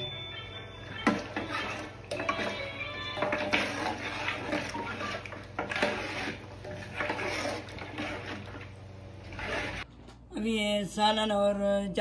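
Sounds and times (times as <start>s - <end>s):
metal ladle stirring in pot: 0.9s - 9.9s.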